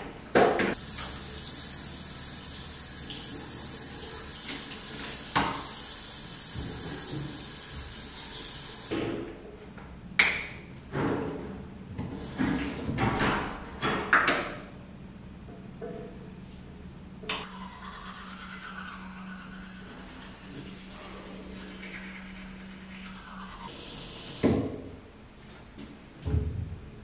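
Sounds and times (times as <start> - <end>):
running water hiss: 0.8 - 8.9.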